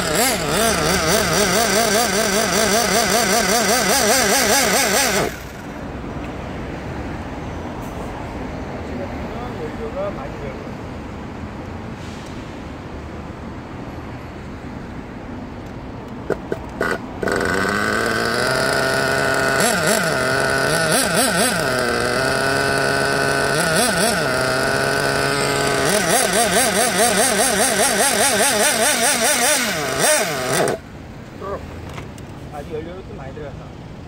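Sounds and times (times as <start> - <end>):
small nitro engine whining: 0.0 - 6.0, 16.2 - 31.6.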